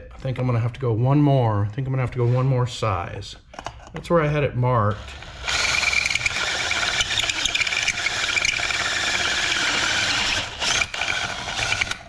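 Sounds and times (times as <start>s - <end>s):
drill cutting through metal: 5.0s - 12.0s.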